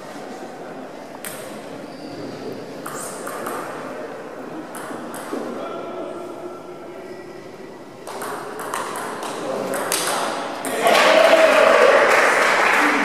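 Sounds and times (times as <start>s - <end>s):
table tennis ball clicking: 8.1s - 10.3s.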